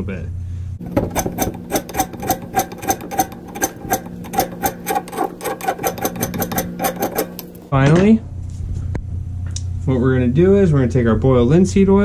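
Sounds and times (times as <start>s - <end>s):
hand file rasping on wood: 0.8s - 7.6s.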